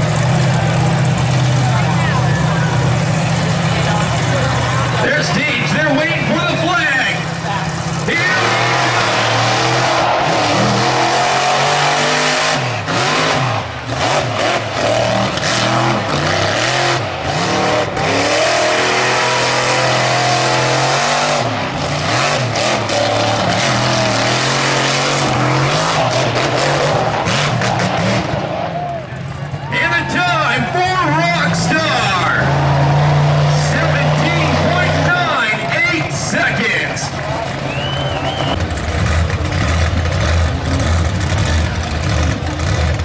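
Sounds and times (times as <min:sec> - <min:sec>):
truck engine revving: 0:00.0 - 0:43.0
tyres churning dirt: 0:00.0 - 0:43.0.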